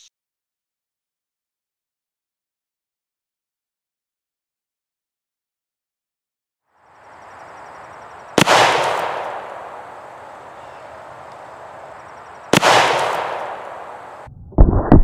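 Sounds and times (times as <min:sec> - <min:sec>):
air rifle shots echoing: 0:07.6 - 0:14.3
dull bangs: 0:12.4 - 0:14.3.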